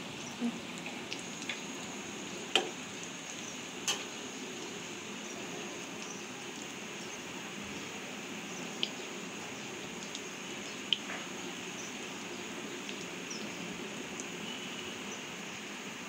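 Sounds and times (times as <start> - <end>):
oil sizzling in pan: 0.0 - 16.0.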